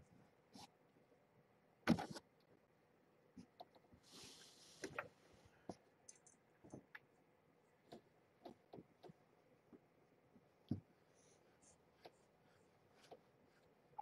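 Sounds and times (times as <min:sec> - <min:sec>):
soft rustles: 0:04.0 - 0:05.8.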